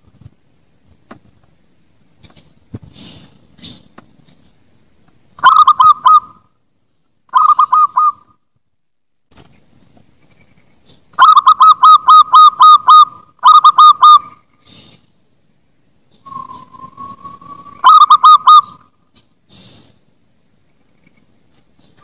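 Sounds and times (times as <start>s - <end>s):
dove cooing: 5.4s - 6.4s, 7.3s - 8.3s, 11.2s - 14.4s, 16.3s - 18.9s.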